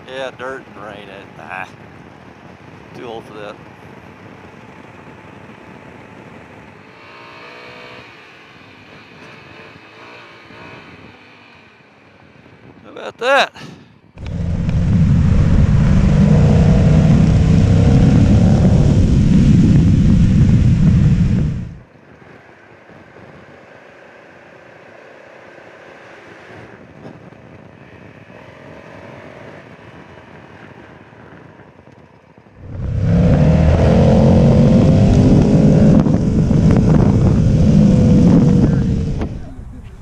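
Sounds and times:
wind rumble on microphone: 0:14.0 - 0:22.3, 0:26.6 - 0:40.0
motorcycle engine: 0:14.2 - 0:21.9, 0:32.1 - 0:40.0.

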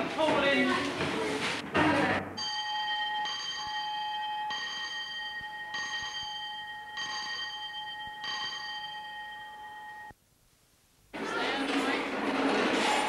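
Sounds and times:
electric school bell ringing: 0:02.4 - 0:10.1.

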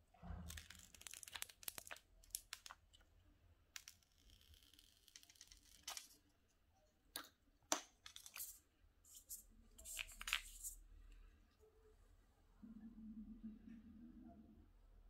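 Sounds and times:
plastic film crackling: 0:00.5 - 0:02.8
plastic film crinkling: 0:00.5 - 0:02.8.

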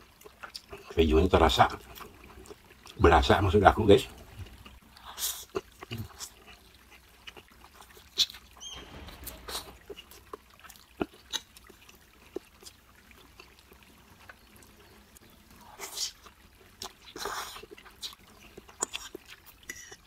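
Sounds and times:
wet chewing: 0:00.0 - 0:01.0, 0:01.6 - 0:03.2, 0:03.8 - 0:20.0
noodle slurping: 0:15.6 - 0:20.0.

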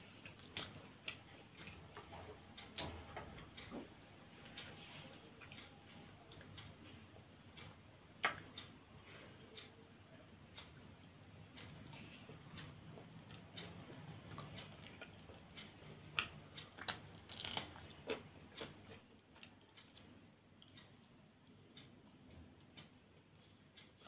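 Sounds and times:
person chewing: 0:10.6 - 0:24.0
crisp food crunching: 0:16.8 - 0:20.0.

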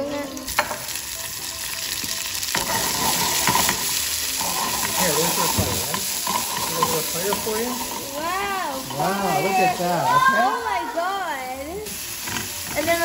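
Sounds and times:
tomatoes sizzling in hot oil: 0:00.0 - 0:13.0.

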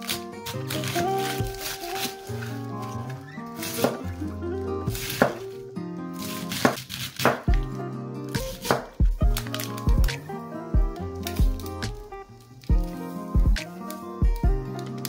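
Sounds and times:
background music: 0:00.0 - 0:15.0
knife chopping cabbage on board: 0:04.9 - 0:05.4, 0:06.2 - 0:07.7, 0:08.4 - 0:10.2.

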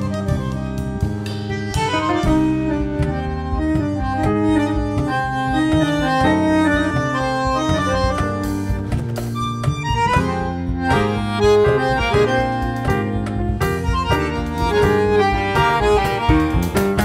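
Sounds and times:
instrumental background music: 0:00.0 - 0:17.0.

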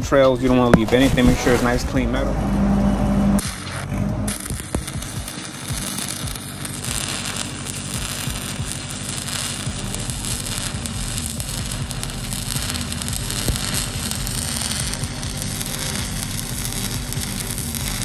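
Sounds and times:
welding arc crackling: 0:00.4 - 0:18.0.

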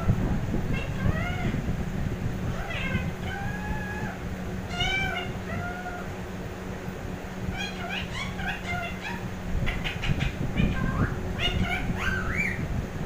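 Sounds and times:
parakeet high-pitched calls: 0:00.7 - 0:01.6, 0:02.5 - 0:06.2, 0:07.5 - 0:12.7.

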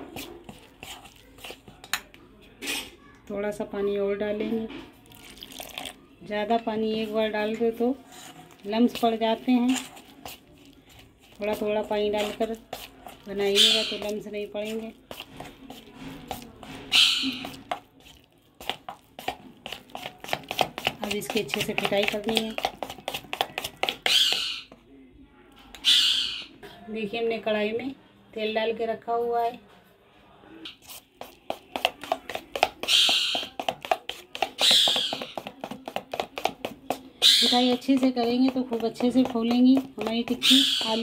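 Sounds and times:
spoon scraping metal bowl: 0:00.0 - 0:03.0, 0:06.6 - 0:24.7, 0:30.7 - 0:41.0
spoon stirring thick batter: 0:00.0 - 0:26.3, 0:30.7 - 0:41.0.

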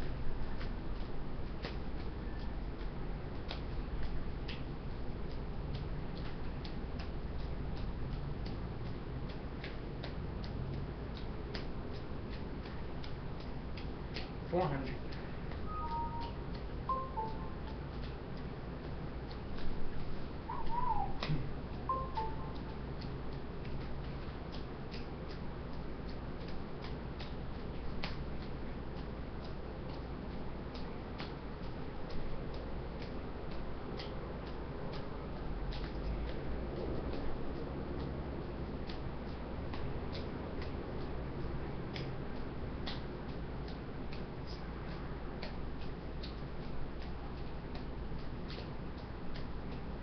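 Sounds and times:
juggling balls caught in hands: 0:00.0 - 0:07.8, 0:20.7 - 0:37.3
steady low hum: 0:00.0 - 0:50.0.

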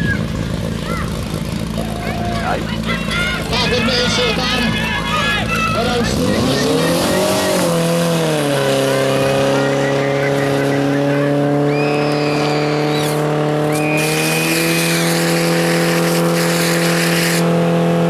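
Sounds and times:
pump engine running at high revs: 0:00.0 - 0:18.0
shrill whistles: 0:09.6 - 0:15.2.

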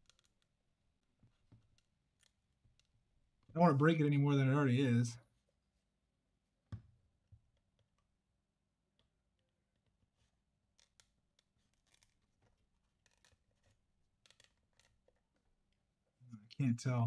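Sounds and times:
plastic clicks and scrapes: 0:00.0 - 0:00.5.

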